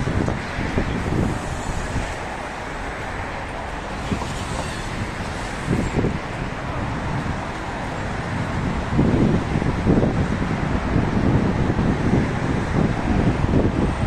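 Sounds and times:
road traffic rumble and tyre hiss: 0.0s - 14.0s.

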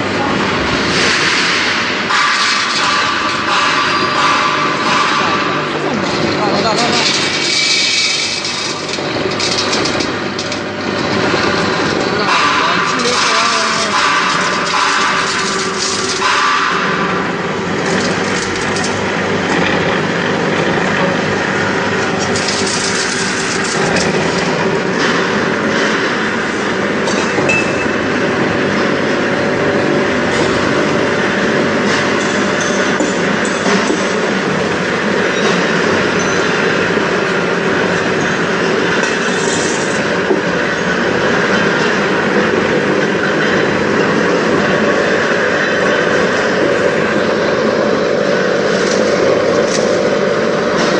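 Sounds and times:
dense machine rattling: 0.0s - 50.9s
machine motor hum: 0.0s - 50.9s.

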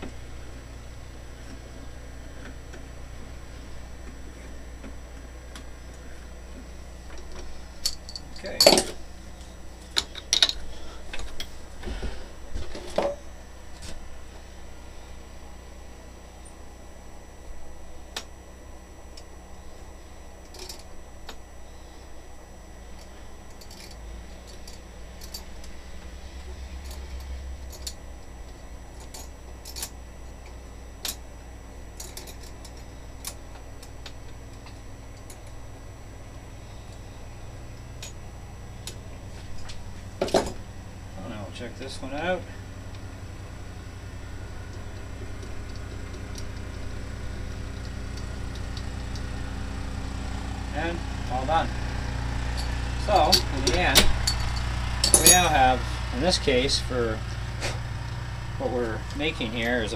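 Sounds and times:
low steady hum: 0.0s - 59.9s
sharp metallic clicks and clinks: 7.8s - 9.0s, 52.5s - 55.8s.

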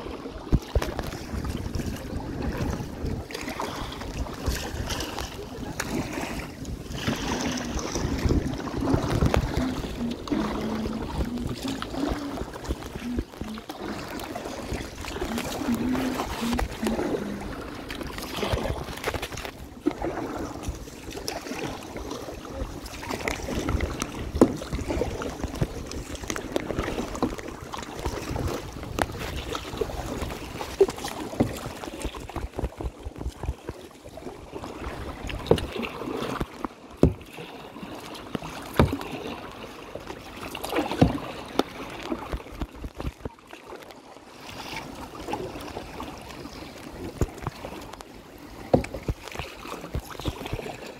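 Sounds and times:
wind rumbling on microphone: 0.0s - 37.2s
paddle splashing in water: 0.0s - 50.9s
water lapping: 0.0s - 50.9s.

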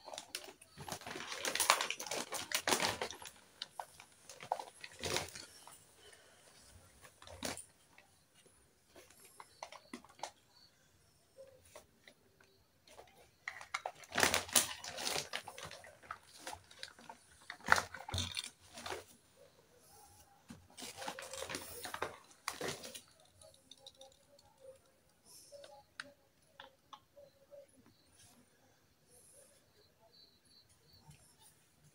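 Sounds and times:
plastic toy pieces clattering: 0.0s - 5.8s, 12.9s - 19.1s, 20.8s - 24.8s.

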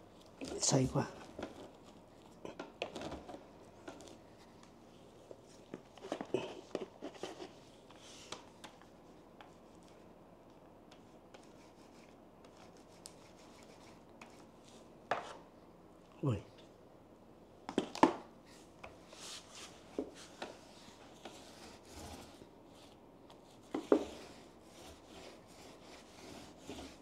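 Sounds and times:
paint roller scraping and clicking: 18.8s - 27.0s.

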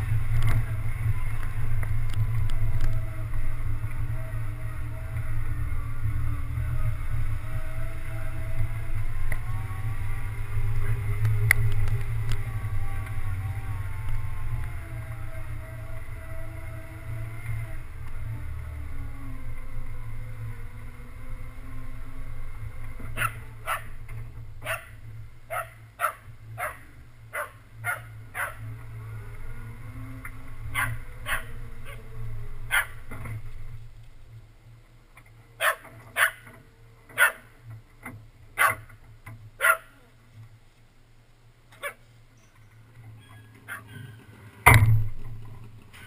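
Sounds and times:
vehicle engine running: 0.0s - 46.0s
dog barking: 23.2s - 23.9s, 24.6s - 24.9s, 25.5s - 28.6s, 32.7s - 33.0s, 35.6s - 36.4s, 37.2s - 37.4s, 38.6s - 38.8s, 39.6s - 40.0s, 41.8s - 42.0s.

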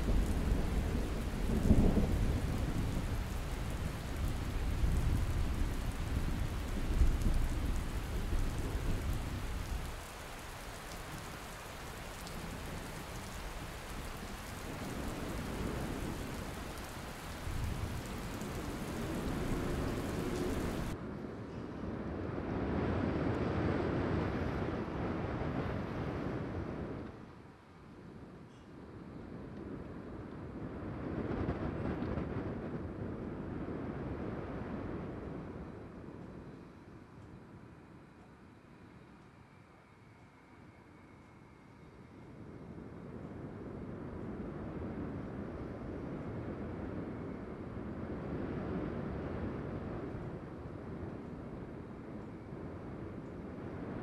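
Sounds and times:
thunder rumbling: 0.0s - 21.0s, 29.9s - 36.2s
steady rain: 0.0s - 54.0s.

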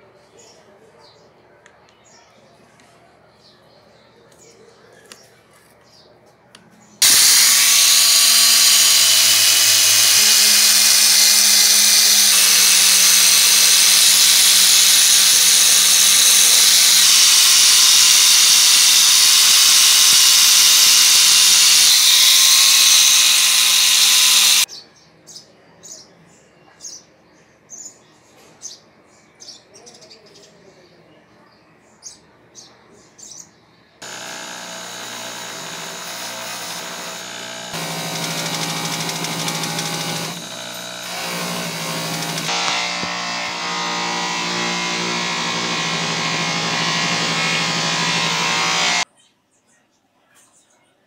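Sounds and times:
angle grinder buffing metal: 7.0s - 24.7s, 34.0s - 49.0s.

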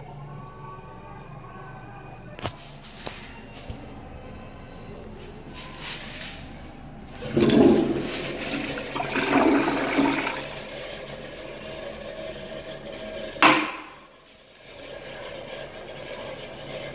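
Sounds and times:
water running: 7.1s - 14.5s
toilet flushing: 7.1s - 16.9s
sharp knock: 13.4s - 14.0s.

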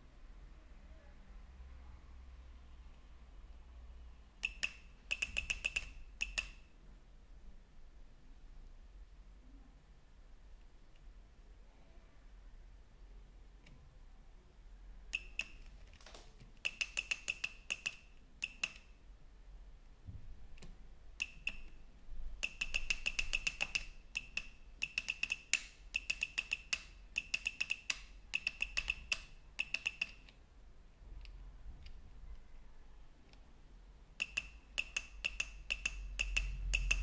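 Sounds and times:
sharp ringing clicks: 4.4s - 6.7s, 15.2s - 15.7s, 16.6s - 18.9s, 21.2s - 21.8s, 22.4s - 30.3s, 34.2s - 37.0s.

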